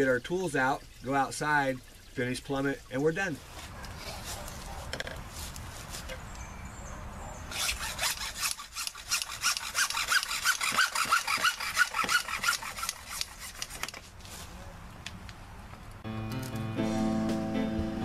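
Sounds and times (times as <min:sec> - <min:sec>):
hacksaw cutting plastic pipe: 0:07.5 - 0:14.1.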